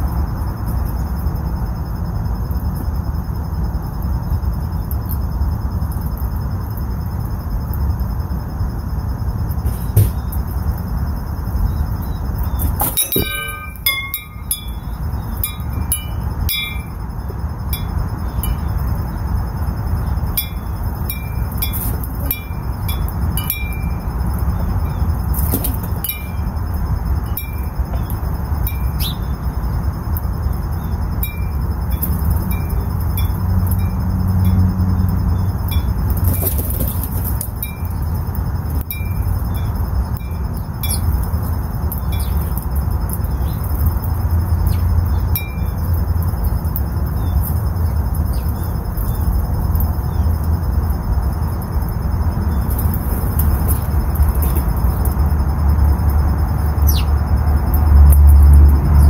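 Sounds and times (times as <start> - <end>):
high chime-like ringing: 12.8 - 17.0.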